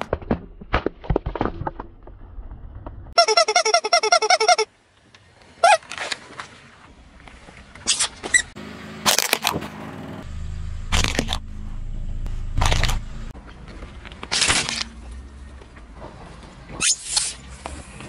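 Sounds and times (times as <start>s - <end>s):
car engine running low: 8.6s - 13.4s.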